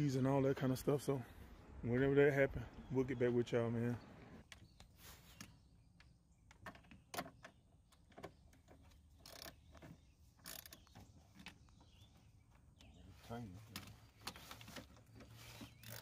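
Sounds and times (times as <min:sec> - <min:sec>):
metallic clicks and scrapes: 0:13.8 - 0:16.0.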